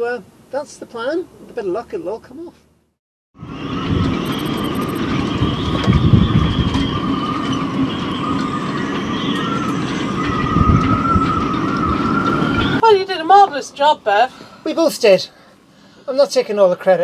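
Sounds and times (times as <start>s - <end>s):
wind gusts rumbling on microphone: 3.4s - 13.3s
wind whistling through rigging: 3.4s - 13.8s.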